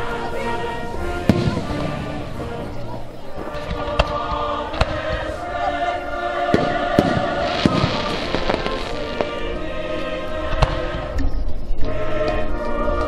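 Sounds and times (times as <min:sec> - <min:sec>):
music with singing voices: 0:00.0 - 0:13.0
firework shells bursting: 0:06.5 - 0:09.6.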